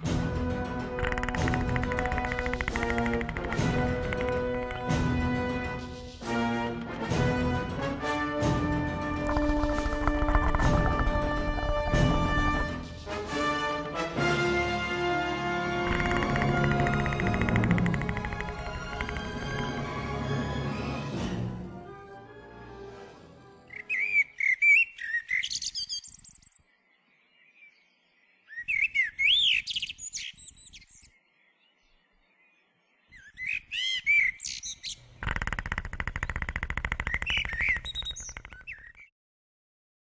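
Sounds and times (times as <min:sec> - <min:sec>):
music: 0:00.0 - 0:24.1
songbird chirping and trilling: 0:01.0 - 0:06.2, 0:23.6 - 0:39.1
low rapid buzzing rattle: 0:15.8 - 0:19.7.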